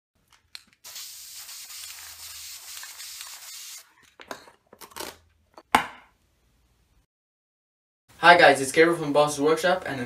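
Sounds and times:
aerosol spray can hissing: 0:00.8 - 0:03.9.

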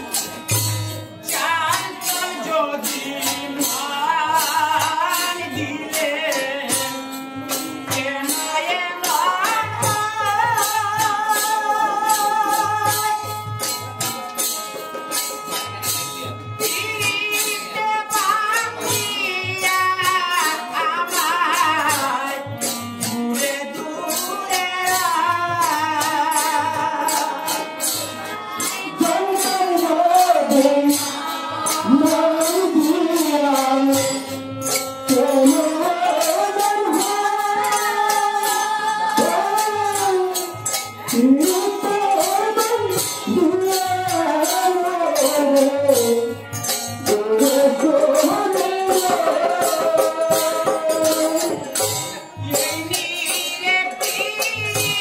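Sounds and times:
hand cymbals striking: 0:00.0 - 0:55.0
harmonium: 0:00.0 - 0:55.0
man singing: 0:01.2 - 0:13.3, 0:28.7 - 0:55.0.

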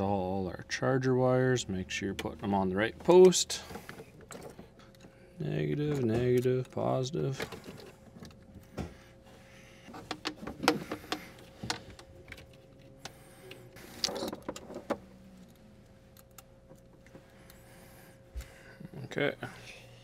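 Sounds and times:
faint steady hum: 0:00.0 - 0:20.0
battery cables clicking and knocking: 0:09.9 - 0:13.2.

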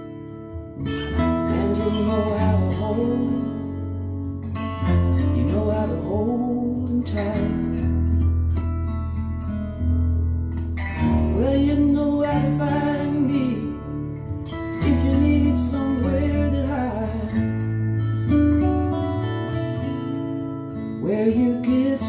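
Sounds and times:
person singing: 0:00.8 - 0:03.8, 0:05.2 - 0:07.8, 0:11.2 - 0:17.6, 0:21.0 - 0:22.0
song through speakers: 0:10.8 - 0:20.1.

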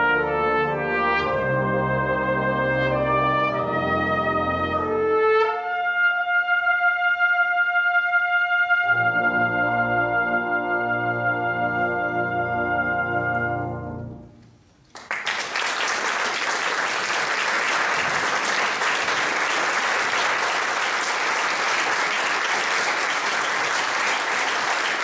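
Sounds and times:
brass band chord: 0:00.0 - 0:14.4
applause: 0:14.8 - 0:25.0.

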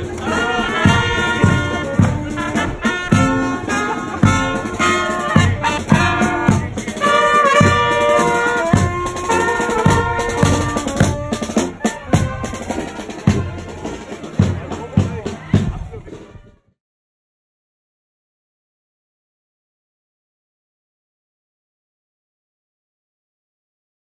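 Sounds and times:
marching brass band playing: 0:00.0 - 0:16.4.

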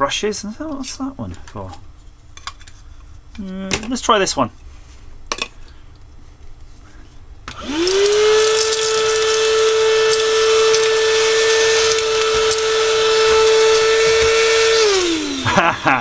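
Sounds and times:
handheld vacuum cleaner motor: 0:07.5 - 0:16.0.

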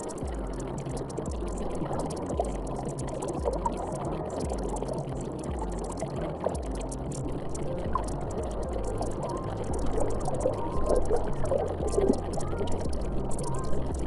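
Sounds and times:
rushing water-like noise: 0:00.0 - 0:14.0
soft low thump: 0:11.6 - 0:13.2.

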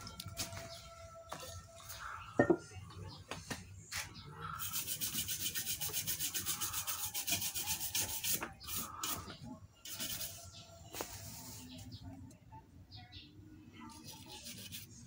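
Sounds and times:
brush scrubbing circuit board: 0:04.6 - 0:10.6, 0:13.9 - 0:15.0.

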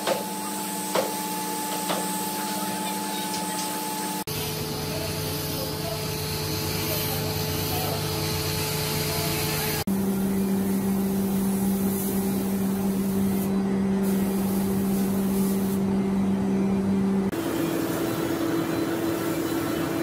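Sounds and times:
spray gun hissing: 0:11.1 - 0:15.8.

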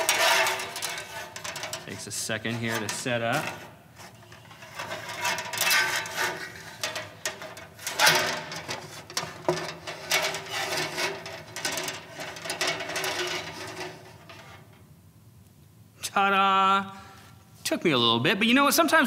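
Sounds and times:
rulers scraping and clicking: 0:00.0 - 0:14.6.

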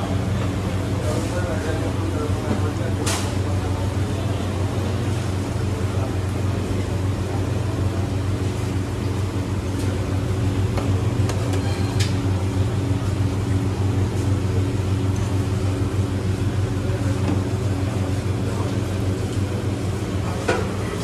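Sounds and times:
low machine hum: 0:00.0 - 0:21.0.

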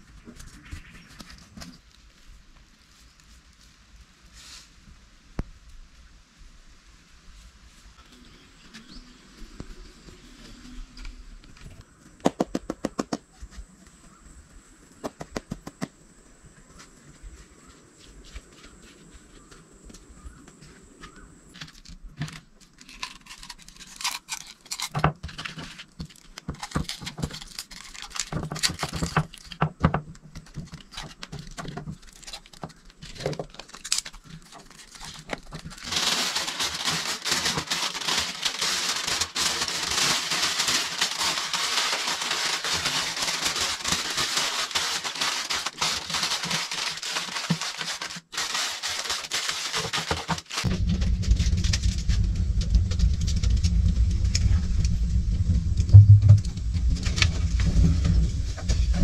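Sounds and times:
loud steady hiss: 0:35.8 - 0:50.6.

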